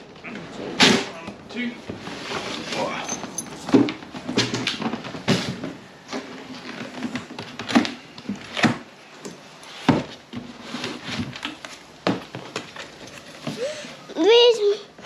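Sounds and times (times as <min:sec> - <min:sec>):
cardboard scraping and rustling: 0:09.7 - 0:13.5.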